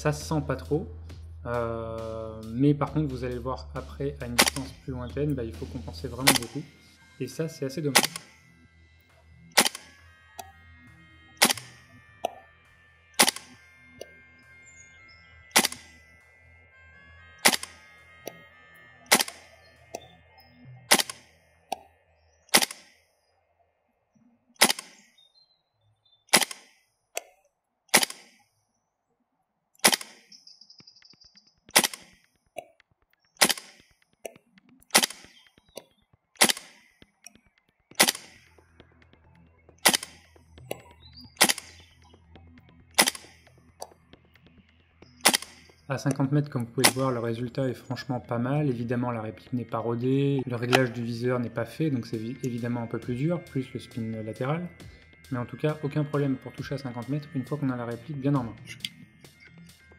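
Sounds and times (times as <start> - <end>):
airsoft rifle single shots: 4.4 - 4.7, 6.3 - 6.6, 8.0 - 8.4, 9.6 - 9.9, 11.4 - 12.4, 13.2 - 13.6, 15.6 - 15.9, 17.4 - 17.8, 19.1 - 19.5, 20.9 - 21.3, 22.5 - 23.0, 24.6 - 25.1, 26.3 - 27.3, 27.9 - 28.4, 29.8 - 30.3, 31.8 - 32.2, 33.4 - 33.9, 34.9 - 35.4, 36.4 - 36.9, 38.0 - 38.5, 39.8 - 40.2, 41.4 - 41.8, 43.0 - 43.4, 45.2 - 45.7.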